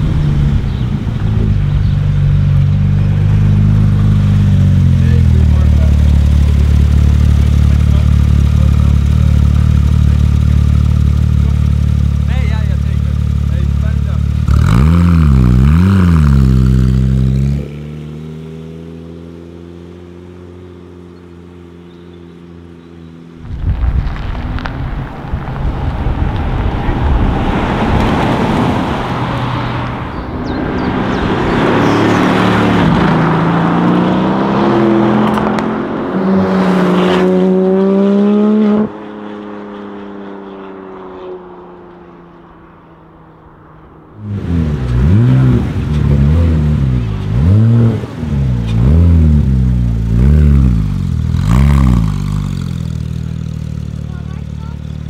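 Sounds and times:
car engine revving at standstill: 0.0 - 23.4, 25.9 - 40.8, 44.2 - 55.0
car pulling away: 0.0 - 55.0
car accelerating through gears: 25.8 - 43.4, 44.2 - 53.6.

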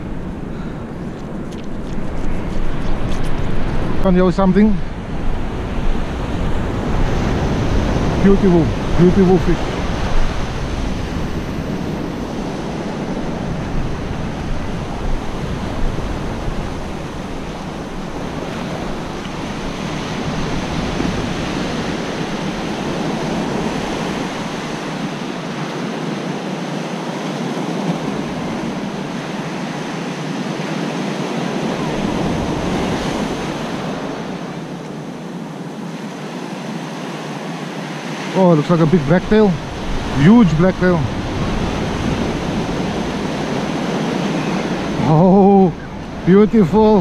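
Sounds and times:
wind buffeting microphone: 0.0 - 26.5, 38.8 - 47.0
surf breaking on beach: 0.0 - 47.0.

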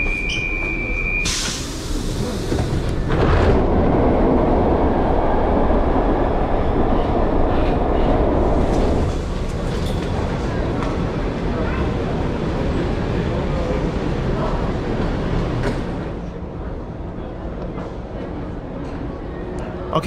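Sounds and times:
loud hiss of air: 1.2 - 2.7.

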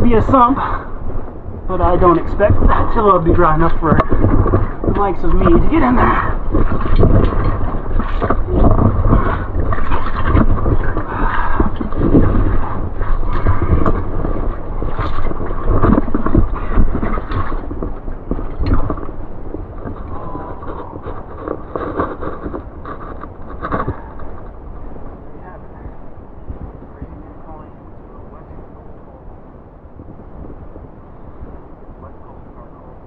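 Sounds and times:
scraping over cobbles: 1.7 - 24.6
splashing in shallow water: 2.4 - 24.8.

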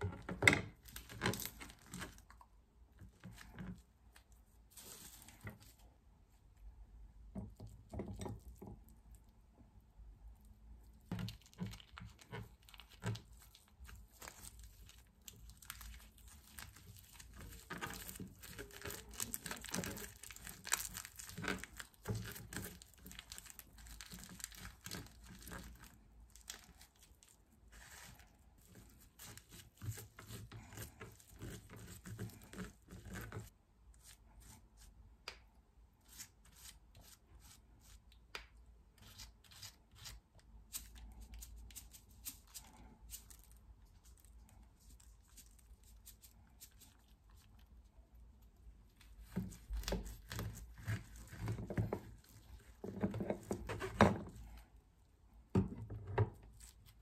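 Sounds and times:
dry seaweed sheets crinkling: 11.0 - 34.9.

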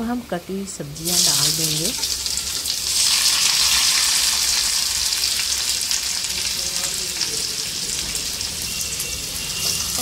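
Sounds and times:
vegetables sizzling in oil: 0.0 - 10.0.

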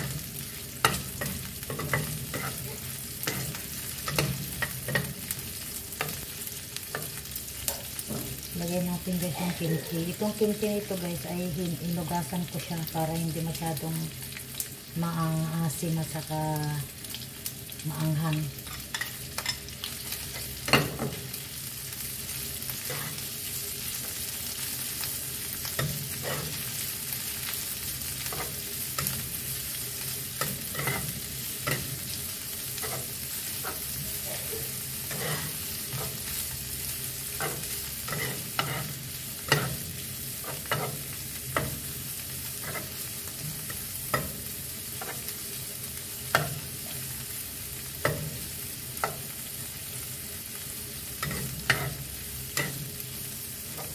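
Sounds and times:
food sizzling in oil: 0.0 - 53.9
spatula scraping and knocking pan: 0.8 - 5.3, 30.4 - 32.1, 35.1 - 36.4, 37.3 - 41.9.

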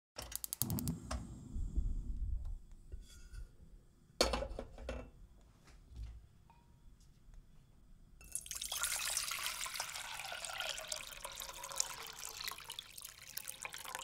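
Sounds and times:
dishes clattering: 4.2 - 5.1.

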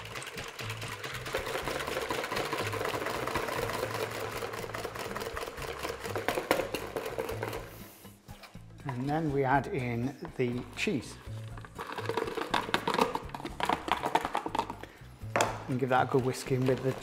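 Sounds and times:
whisk clattering in plastic bowl: 0.0 - 7.7, 11.5 - 17.0.

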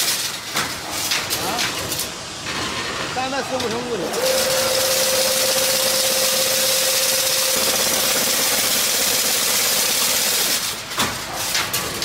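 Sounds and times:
fence machine mechanical noise: 3.5 - 12.0.

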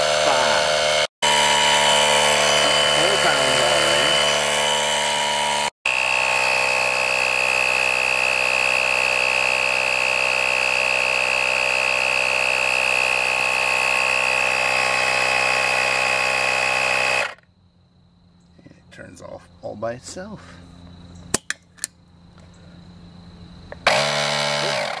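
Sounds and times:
air compressor whining: 0.0 - 17.4, 23.7 - 25.0.

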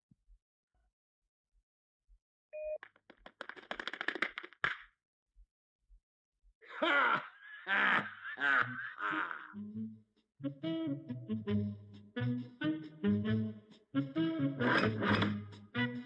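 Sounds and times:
brief beep: 2.6 - 2.8
clattering cartoon sound effects: 2.8 - 4.9, 14.6 - 15.6
cartoon bear laughing deeply: 6.7 - 9.6.

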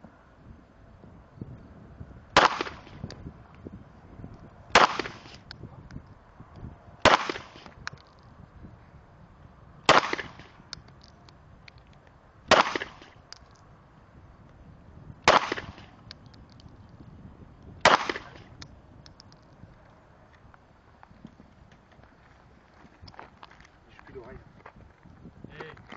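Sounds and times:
pistol shots with echo: 2.4 - 3.0, 4.7 - 5.4, 7.0 - 7.7, 9.9 - 10.6, 12.5 - 13.1, 15.2 - 15.9, 17.8 - 18.5.

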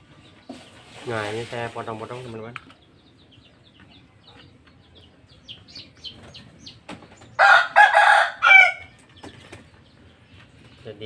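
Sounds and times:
rooster crowing: 7.4 - 8.9.

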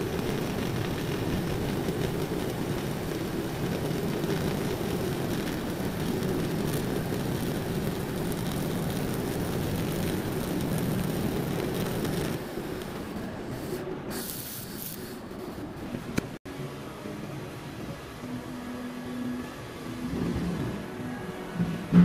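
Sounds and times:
welding arc humming: 0.0 - 16.4
steady background noise: 0.0 - 22.0.

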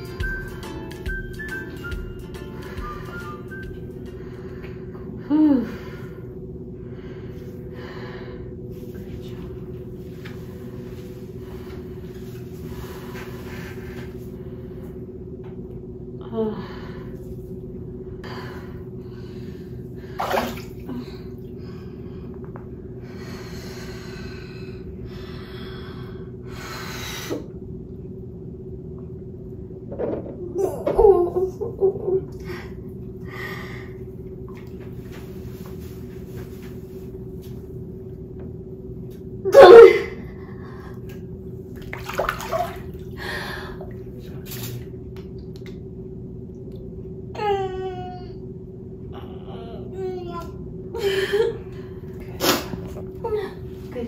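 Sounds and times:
steady hum: 0.0 - 54.0
long breaths: 4.2 - 8.8, 20.9 - 27.5
water moving in a tub: 20.0 - 21.7, 41.0 - 45.7
bathwater sloshing: 20.1 - 21.6, 41.6 - 43.2
water splashes: 20.2 - 20.9, 41.8 - 43.1.

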